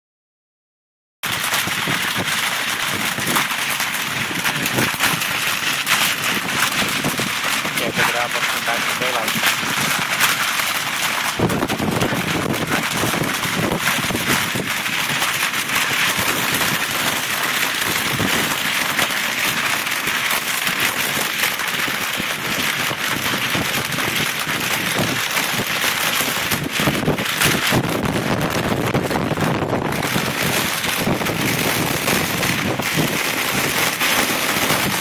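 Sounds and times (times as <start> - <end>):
storm wind and rain: 1.2 - 35.0.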